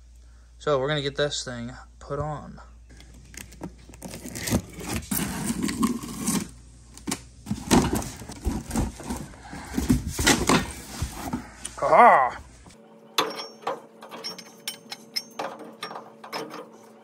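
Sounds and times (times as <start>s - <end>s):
cardboard flaps rustling: 3.6s - 11.6s.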